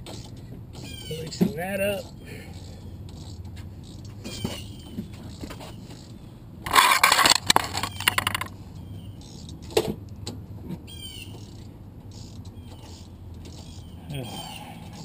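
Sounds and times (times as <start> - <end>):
birds chirping: 0.0 - 9.8, 10.8 - 15.0
rustling and metallic clattering: 3.1 - 8.6.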